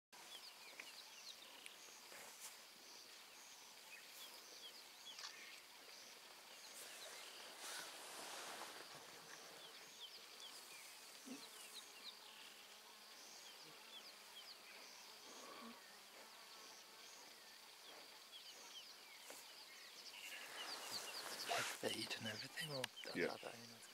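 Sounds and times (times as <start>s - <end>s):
high insect drone: 0.2s - 23.9s
rustling noise: 6.7s - 11.2s, 20.2s - 22.2s.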